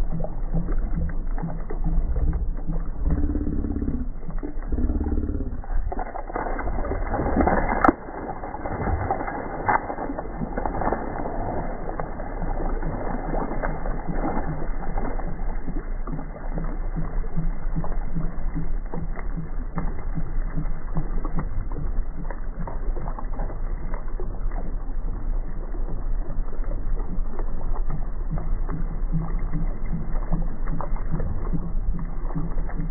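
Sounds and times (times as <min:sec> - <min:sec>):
water splashing against boat hull: 0:00.0 - 0:24.7
steady low hum: 0:00.0 - 0:32.9
fish thrashing at surface: 0:02.7 - 0:15.4.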